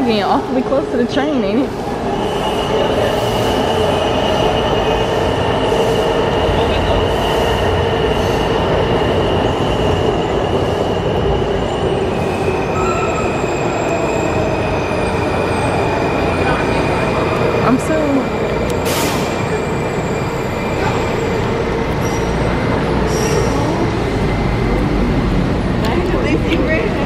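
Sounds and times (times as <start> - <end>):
subway train wheels rumbling on rails: 0.0 - 27.0.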